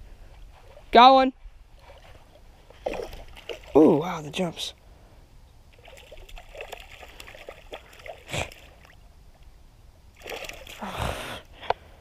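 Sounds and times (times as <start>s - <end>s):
fish splashing in water: 1.8s - 3.8s, 5.8s - 9.0s, 10.2s - 10.9s.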